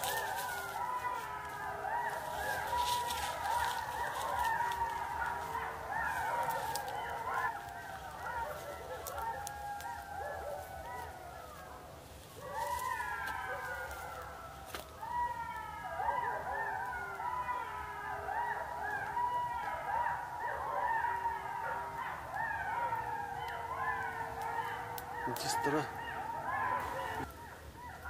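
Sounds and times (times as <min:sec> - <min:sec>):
chorus of wailing animal calls: 0:00.0 - 0:28.0.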